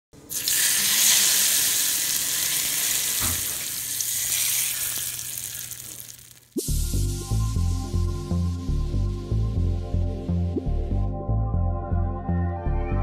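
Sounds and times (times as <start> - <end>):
hot oil sizzling: 0.3 - 8.6.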